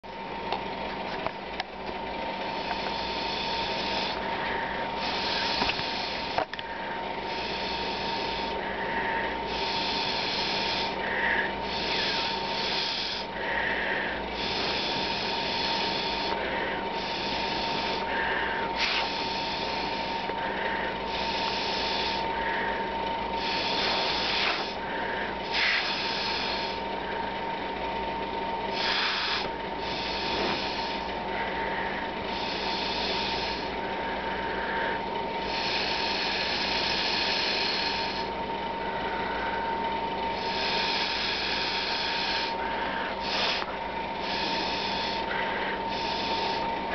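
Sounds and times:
air blown through a straw: 7.2 - 22.8, 23.4 - 27.2, 28.7 - 38.4, 40.3 - 46.7.

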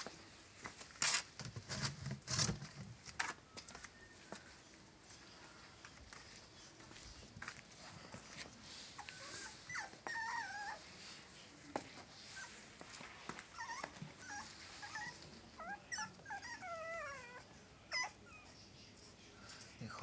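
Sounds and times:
puppies whining and whimpering: 9.0 - 10.9, 13.5 - 18.7.

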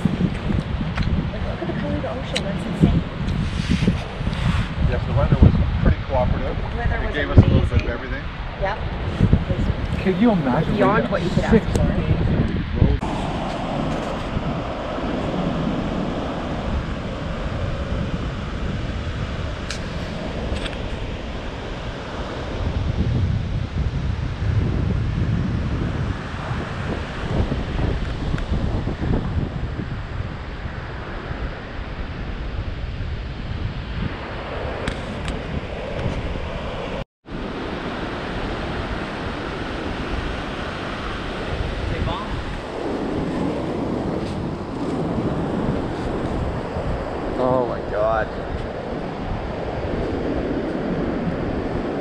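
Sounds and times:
ocean surf: 0.0 - 52.0
wind buffeting microphone: 0.0 - 52.0.

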